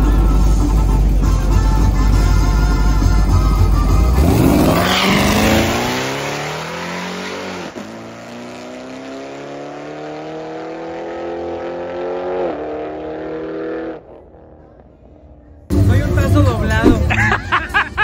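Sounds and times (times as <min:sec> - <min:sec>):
car engine accelerating hard: 0:03.8 - 0:14.8.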